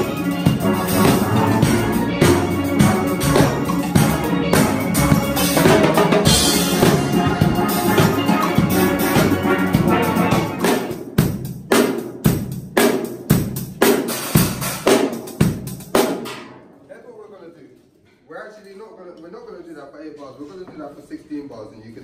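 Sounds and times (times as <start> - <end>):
steel pans playing: 0.0 - 10.8
drum kit with cymbals: 0.0 - 16.8.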